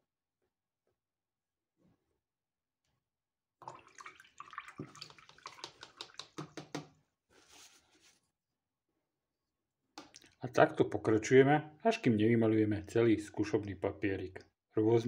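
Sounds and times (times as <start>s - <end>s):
brush swishing in water jar: 7.3s - 8.3s
paper towel rustling: 7.3s - 8.3s.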